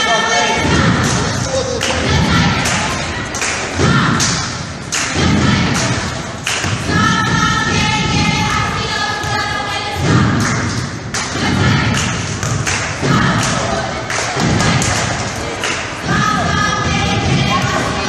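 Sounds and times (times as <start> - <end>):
crowd chanting: 0.0 - 10.5, 11.2 - 18.0
crowd voices: 0.0 - 18.0.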